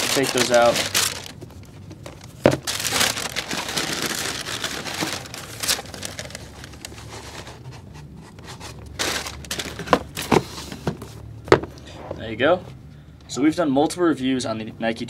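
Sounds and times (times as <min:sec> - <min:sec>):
tissue paper crinkling: 0:00.0 - 0:07.9, 0:08.5 - 0:10.3.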